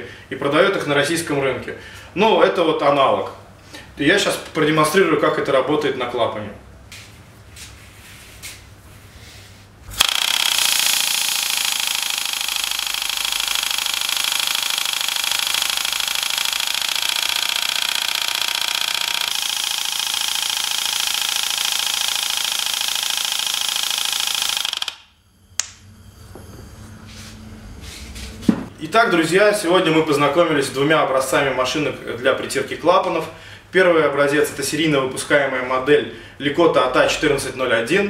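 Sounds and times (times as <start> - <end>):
pneumatic tool rattling: 9.9 - 25.0.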